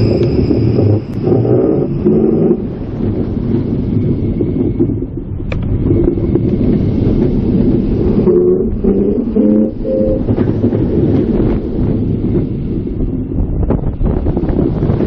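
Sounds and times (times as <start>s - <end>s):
stepped whining tone: 0.0s - 14.7s
wheels rumbling on rails: 0.0s - 15.0s
wind rushing past: 0.0s - 15.0s.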